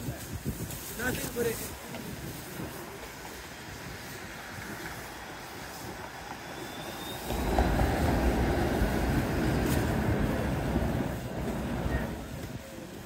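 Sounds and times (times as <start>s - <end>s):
passing vehicle rumble: 4.2s - 12.9s.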